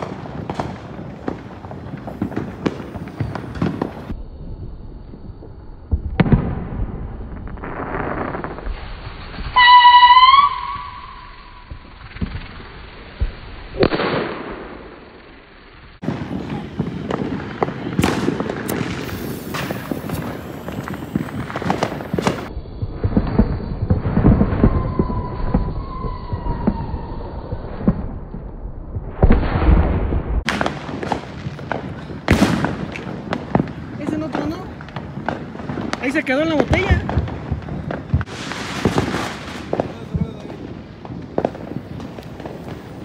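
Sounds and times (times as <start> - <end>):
fireworks bangs and crackling: 0.0 - 43.0
faint rocket whistle: 1.8 - 34.7.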